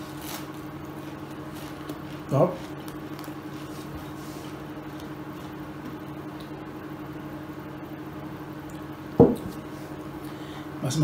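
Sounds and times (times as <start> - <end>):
low indoor hum: 0.0 - 11.0
dull thump: 9.2 - 9.6.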